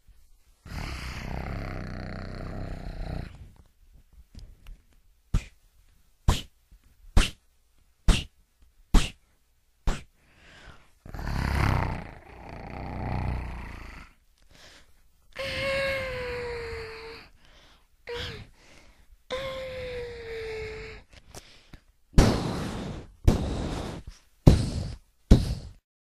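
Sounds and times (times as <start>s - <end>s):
deep dinosaur roar: 0.7s - 3.4s, 11.1s - 14.1s
gunshot sound effects: 22.2s - 24.8s.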